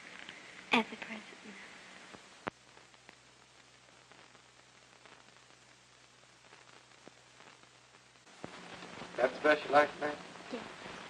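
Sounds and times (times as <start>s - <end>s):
faint clicks: 0.0s - 1.1s
faint hiss: 0.0s - 11.0s.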